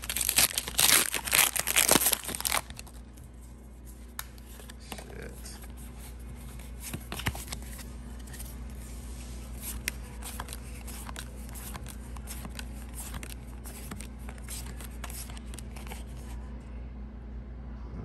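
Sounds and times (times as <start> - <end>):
steady low hum: 0.0 - 18.0
trading cards flipped by hand: 6.4 - 8.8, 9.5 - 16.2.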